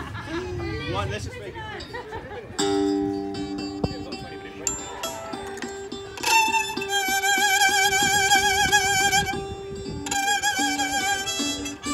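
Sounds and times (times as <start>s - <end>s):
guitar riff: 2.6s - 11.9s
violin note with vibrato: 6.0s - 11.9s.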